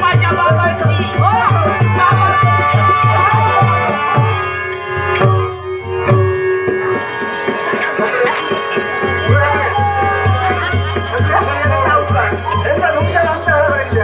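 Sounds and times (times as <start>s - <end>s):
hand drum beating fast: 0.0s - 4.4s
harmonium held tones: 0.0s - 14.0s.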